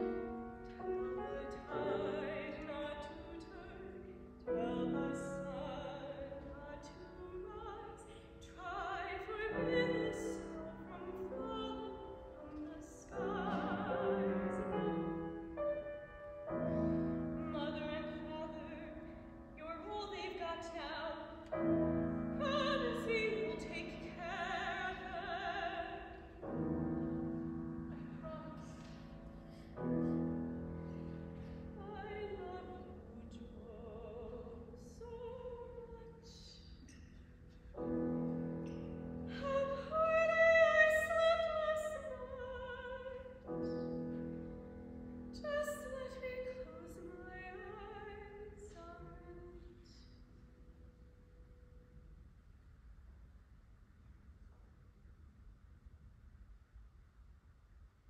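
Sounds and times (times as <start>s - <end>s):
piano chords: 0.0s - 52.2s
woman singing opera: 0.8s - 15.4s, 16.6s - 26.4s, 28.0s - 29.0s, 31.8s - 36.7s, 39.3s - 43.8s, 45.4s - 50.0s.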